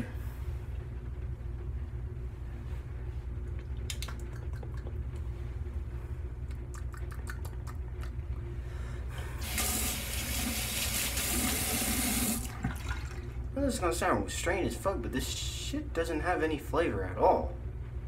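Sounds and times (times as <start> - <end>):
low hum: 0.0 - 10.5
tap water running: 9.4 - 13.3.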